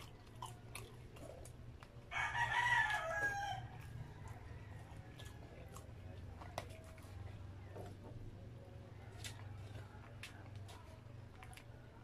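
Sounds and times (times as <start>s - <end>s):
rooster crowing: 2.1s - 5.5s.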